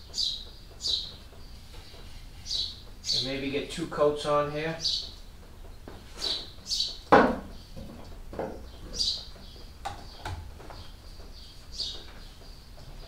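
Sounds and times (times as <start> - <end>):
bird chirping: 0.0 - 13.0
paint roller and tray knocks: 7.1 - 8.6.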